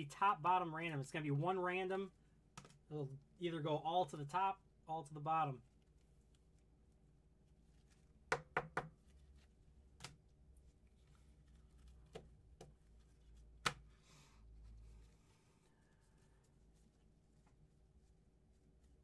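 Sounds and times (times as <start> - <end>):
trading cards tapping and clicking: 2.5 - 2.8
soft rustle: 5.5 - 8.3, 8.9 - 19.0.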